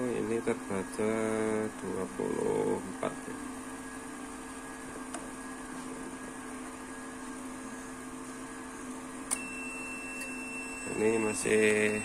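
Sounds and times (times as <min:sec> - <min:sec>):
cooling fans humming and whirring: 0:00.0 - 0:12.0.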